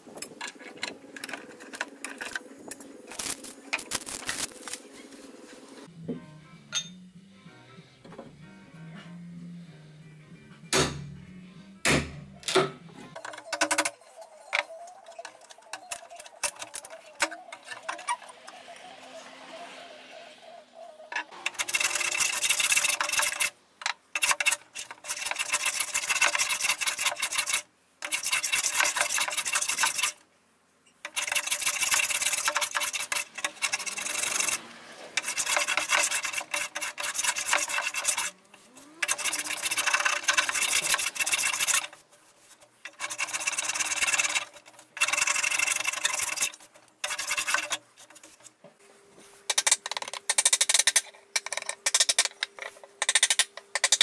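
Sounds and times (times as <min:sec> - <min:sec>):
scraper rasping over wood: 0:21.3 - 0:23.6, 0:24.2 - 0:30.2, 0:31.1 - 0:48.5.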